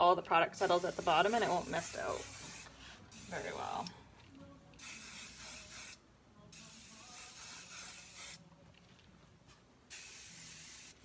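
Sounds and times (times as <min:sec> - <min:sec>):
spray can hissing: 0:00.6 - 0:03.9, 0:04.8 - 0:08.4, 0:09.9 - 0:11.0.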